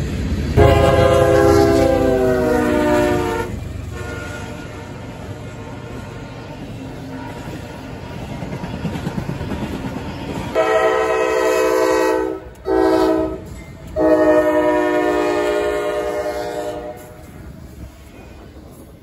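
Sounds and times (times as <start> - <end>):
freight train rumbling: 0.0 - 19.0
locomotive air horn blasts: 0.6 - 6.2, 10.5 - 17.2.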